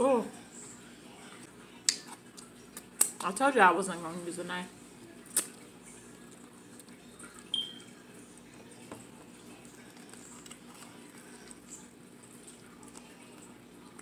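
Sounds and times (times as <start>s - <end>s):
quiet handling of meat: 4.8s - 14.0s.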